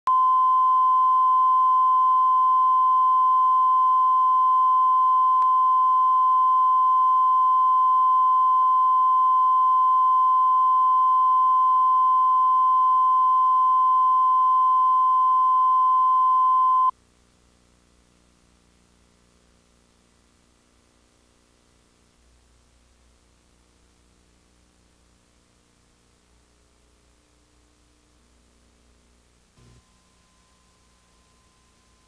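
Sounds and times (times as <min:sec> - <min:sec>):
steady test tone: 0:00.1 - 0:16.9.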